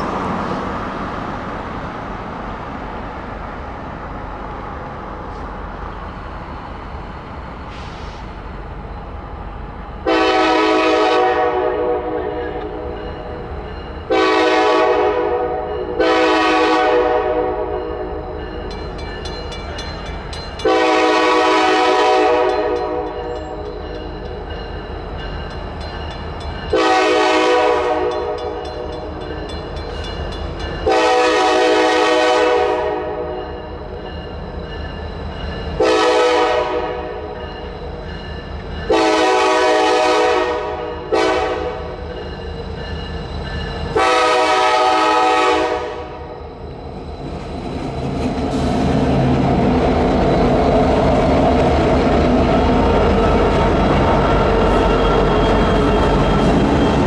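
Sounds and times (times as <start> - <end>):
diesel locomotive rumble: 0.0 - 57.0
locomotive air horn blasts: 10.0 - 12.8, 14.1 - 18.1, 20.6 - 23.2, 26.7 - 28.6, 30.8 - 33.4, 35.8 - 37.2, 38.9 - 41.9, 44.0 - 46.3.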